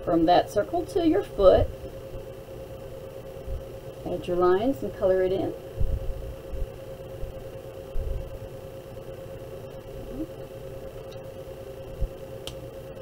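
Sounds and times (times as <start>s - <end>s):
high electrical hum: 0.0s - 13.0s
soft low bumps: 5.8s - 7.3s.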